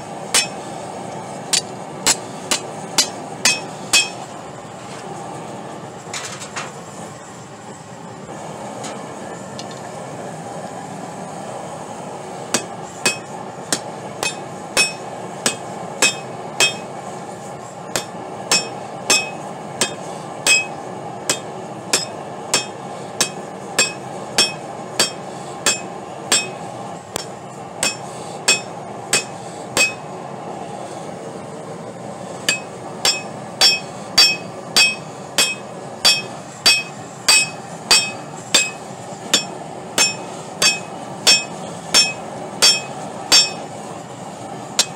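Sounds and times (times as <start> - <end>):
forge burner roaring: 0.0 - 44.9
hammer striking hot steel on anvil: 0.2 - 4.4, 12.5 - 17.0, 17.9 - 30.2, 32.4 - 43.9.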